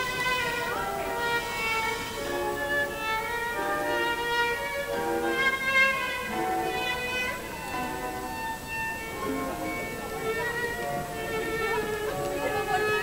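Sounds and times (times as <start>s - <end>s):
violin melody over sustained notes: 0.0s - 13.0s.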